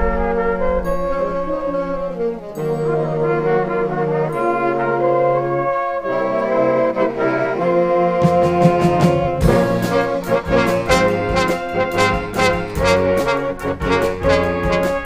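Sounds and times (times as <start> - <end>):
brass band playing chords: 0.0 - 15.0
drums and cymbals beat: 8.2 - 15.0.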